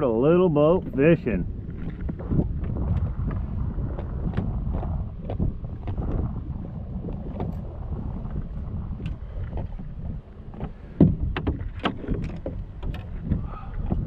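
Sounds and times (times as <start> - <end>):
wind rumbling on microphone: 0.0 - 14.0
gear knocking on boat deck: 9.0 - 14.0.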